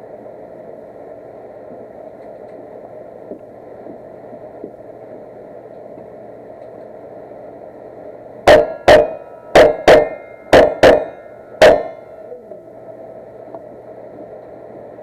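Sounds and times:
steel targets ringing: 8.5s - 12.2s.

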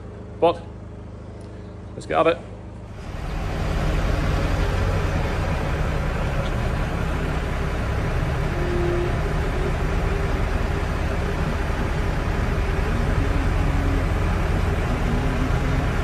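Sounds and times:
tractor engine idling: 2.6s - 16.0s.

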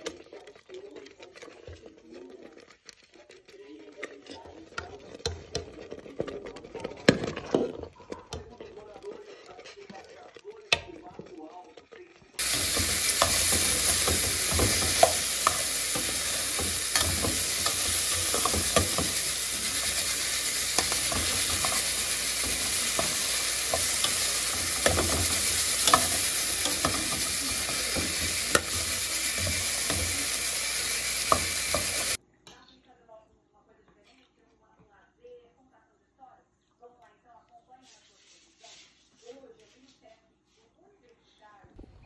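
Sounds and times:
spatula scraping a pan: 0.0s - 11.4s, 12.4s - 32.2s
okra sizzling in a pot: 0.0s - 32.2s.

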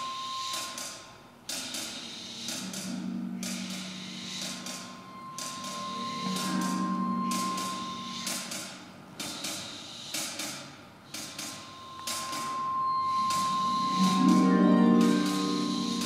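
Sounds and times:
high steady tone: 2.3s - 9.2s, 11.4s - 16.0s
low sustained note: 2.5s - 9.1s, 11.6s - 16.0s.

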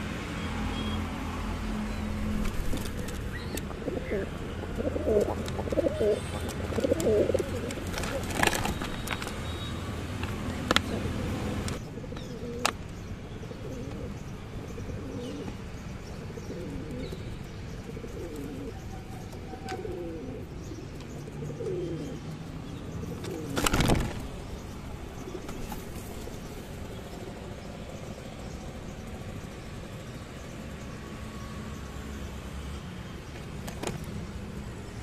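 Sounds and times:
pigeons cooing: 2.5s - 8.8s, 10.8s - 12.8s, 13.4s - 26.4s.

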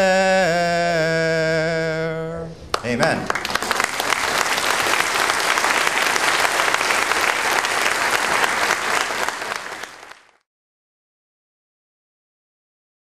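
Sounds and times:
crowd applauding: 2.7s - 10.4s.

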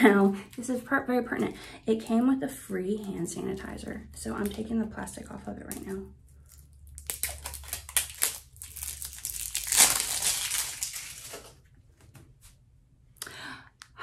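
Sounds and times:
plastic wrapping crinkling and tearing: 6.3s - 11.6s.

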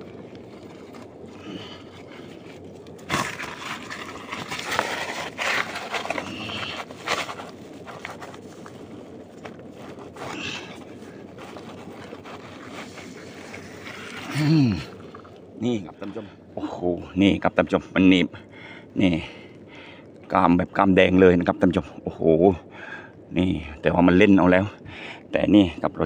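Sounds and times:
scraping and crackling in mud: 0.0s - 16.2s.

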